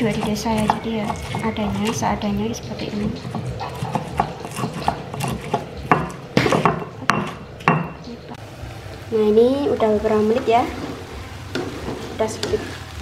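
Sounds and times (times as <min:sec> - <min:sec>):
stone pestle grinding in mortar: 0:00.0 - 0:07.4.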